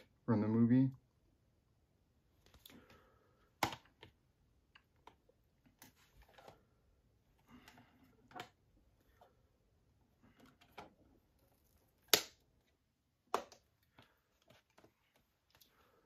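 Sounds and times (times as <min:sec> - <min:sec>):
disc cases clicking and tapping: 0:03.6 - 0:04.2.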